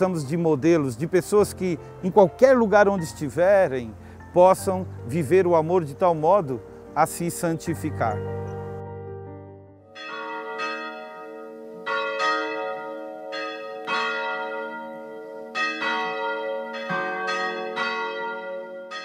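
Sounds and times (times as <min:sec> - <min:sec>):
bells ringing: 0:09.9 - 0:19.0.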